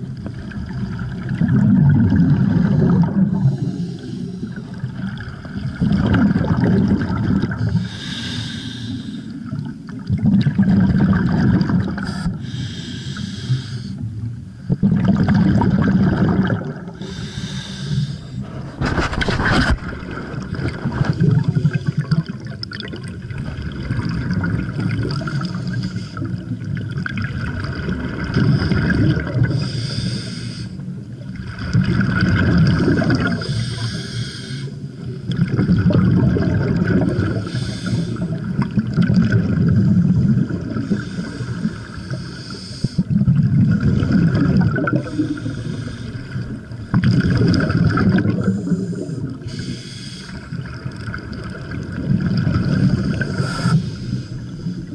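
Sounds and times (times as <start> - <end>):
exhaled bubbles rumbling underwater: 0.0 - 54.9
regulator inhale hiss: 3.4 - 4.7, 7.6 - 9.5, 12.1 - 14.0, 17.0 - 18.8, 25.3 - 26.4, 29.5 - 30.9, 33.4 - 35.0, 37.3 - 38.4, 39.8 - 43.1, 45.0 - 46.5, 48.4 - 50.7, 52.8 - 54.9.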